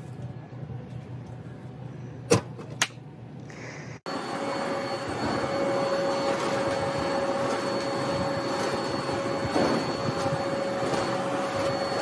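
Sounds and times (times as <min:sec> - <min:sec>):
vacuum cleaner whining: 0:04.1 - 0:12.0.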